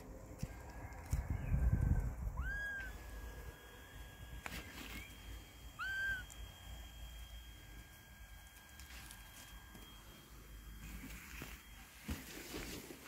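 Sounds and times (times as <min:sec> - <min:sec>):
kitten meowing: 0:02.4 - 0:03.0, 0:05.8 - 0:06.4.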